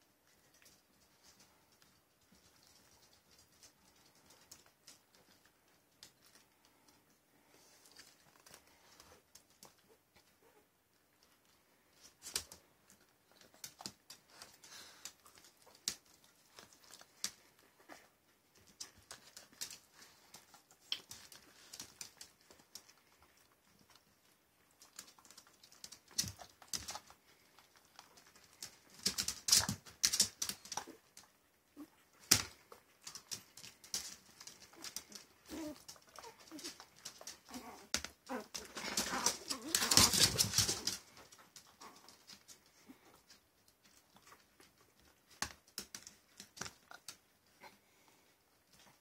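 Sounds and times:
dog claws clicking on tile: 0:12.1 - 0:17.6, 0:18.6 - 0:24.1, 0:24.7 - 0:31.3, 0:32.2 - 0:47.3.

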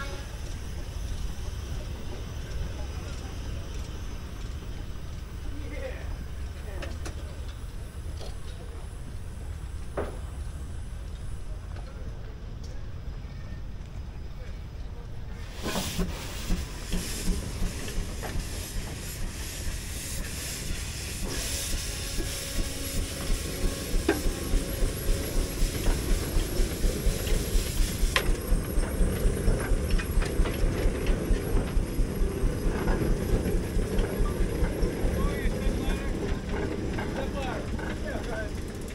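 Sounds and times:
steam hissing: 0:00.0 - 0:12.0, 0:15.2 - 0:38.9
steam engine exhaust chuffing: 0:15.4 - 0:38.9.

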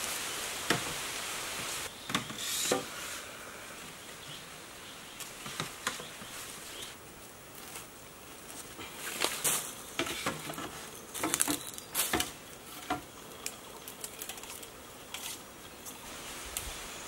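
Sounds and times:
light scraping and rustling: 0:08.5 - 0:16.0.

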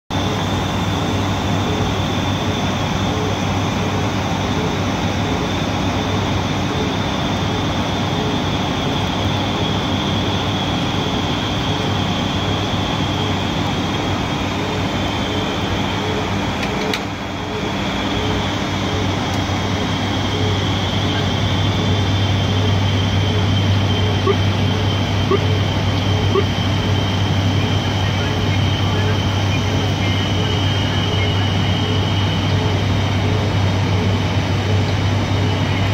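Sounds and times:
turboprop engine hum: 0:00.0 - 0:35.9
thin high whine: 0:00.1 - 0:35.9
click: 0:16.6 - 0:17.1.

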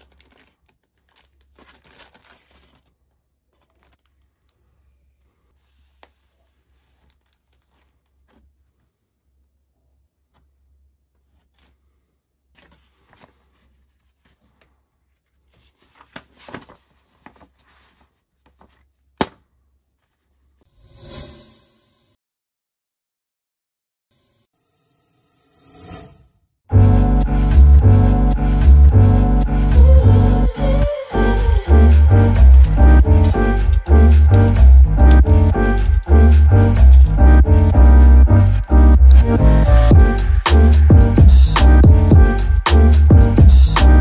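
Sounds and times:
plastic packaging rustling: 0:00.0 - 0:04.6, 0:06.0 - 0:08.5, 0:12.6 - 0:19.0.

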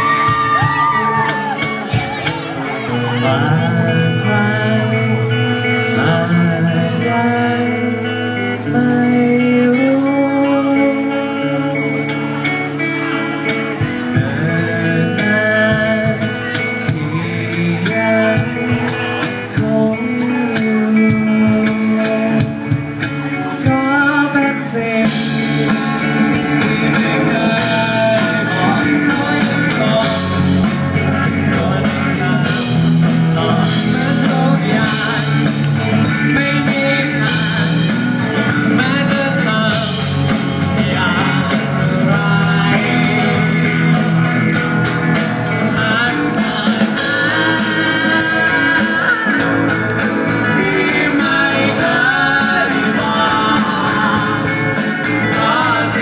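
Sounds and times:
acoustic and electric guitars: 0:00.0 - 0:56.0
keyboard: 0:00.0 - 0:56.0
male singer: 0:00.0 - 0:56.0
drum beat and cymbals: 0:25.1 - 0:56.0.

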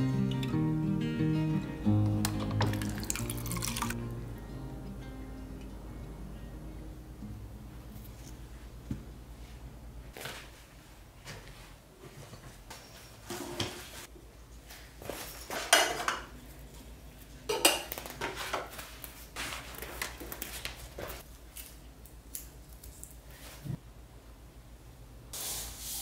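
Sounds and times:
dishes and cutlery clinking: 0:15.4 - 0:16.4, 0:17.5 - 0:18.7.

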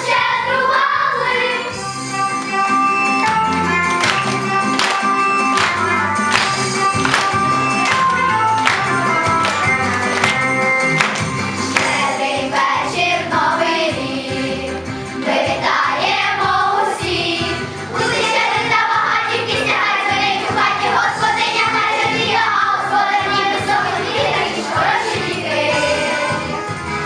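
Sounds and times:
children singing: 0:00.0 - 0:01.8, 0:11.7 - 0:26.6
instrumental accompaniment: 0:01.3 - 0:27.0.

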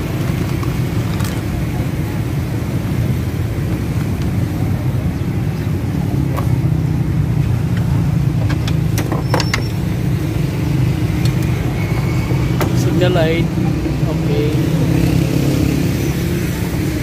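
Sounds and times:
low vehicle engine rumble: 0:00.0 - 0:17.0.

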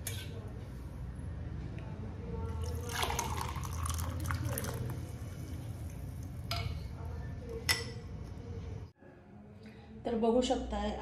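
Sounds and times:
liquid pouring through a strainer: 0:02.6 - 0:06.4.

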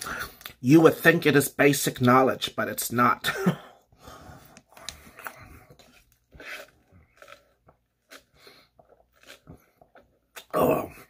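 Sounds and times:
person chewing food: 0:04.0 - 0:11.0.

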